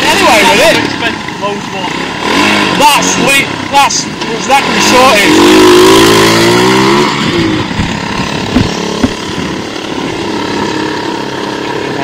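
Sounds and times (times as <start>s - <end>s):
quad bike engine running: 0.0s - 12.0s
sharp knocks: 7.7s - 9.6s.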